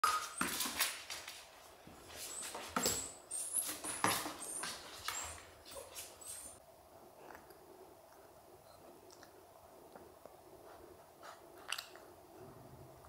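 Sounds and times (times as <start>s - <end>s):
puppy squeaking: 2.3s - 6.6s.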